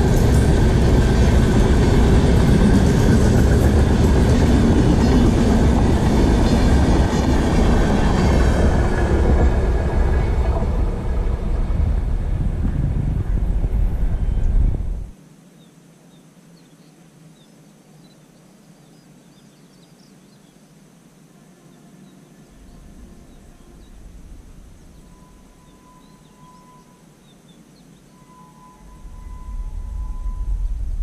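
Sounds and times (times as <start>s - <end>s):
distant train horn: 0.0s - 12.1s, 21.3s - 27.2s, 28.0s - 30.9s
approaching train rumble: 0.0s - 15.1s, 22.3s - 27.0s, 28.0s - 31.0s
low rumble: 0.0s - 15.1s, 28.8s - 31.0s.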